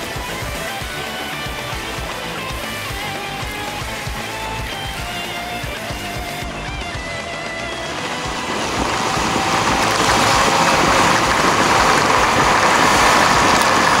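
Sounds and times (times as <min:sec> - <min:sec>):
wind rushing over microphone: 0:07.5 - 0:14.0.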